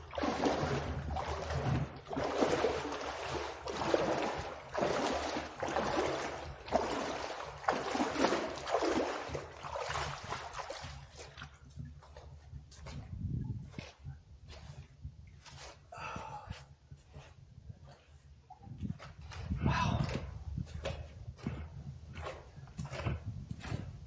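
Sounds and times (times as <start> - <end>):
footsteps splashing through water: 0.0 - 15.8, 17.9 - 24.0.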